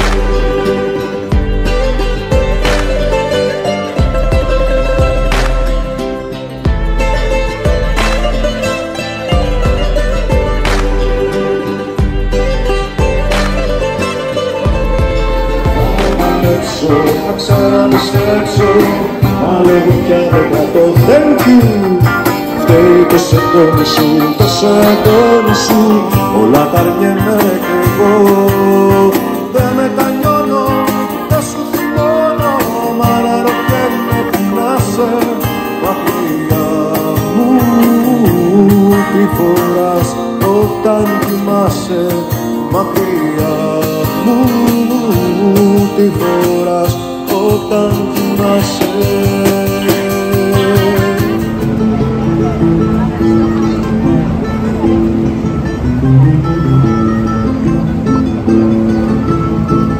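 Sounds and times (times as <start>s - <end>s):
person singing: 0.0s - 54.1s
acoustic and electric guitars: 0.0s - 59.9s
cajon beat: 0.0s - 59.9s.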